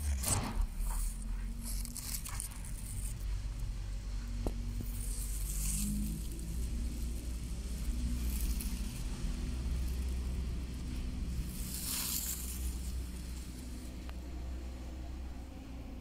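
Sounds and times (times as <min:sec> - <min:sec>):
low rumble: 0:00.0 - 0:16.0
fern fronds brushing phone: 0:04.6 - 0:14.0.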